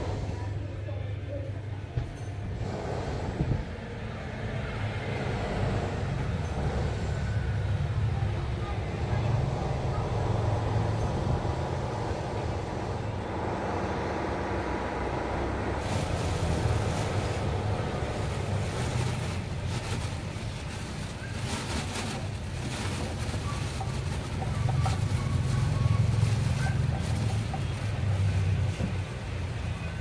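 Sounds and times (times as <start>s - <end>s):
traffic rumble: 0.0s - 30.0s
light crackles and rustles: 15.8s - 29.7s.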